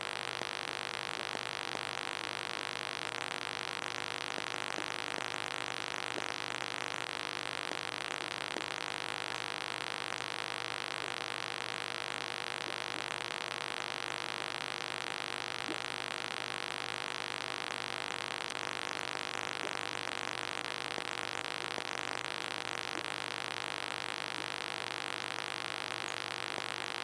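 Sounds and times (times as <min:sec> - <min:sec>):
faint ticks: 0:00.0 - 0:11.4, 0:12.5 - 0:13.4, 0:15.3 - 0:16.0, 0:18.0 - 0:24.7, 0:25.8 - 0:26.9
aquarium equipment hiss and hum: 0:00.0 - 0:27.0.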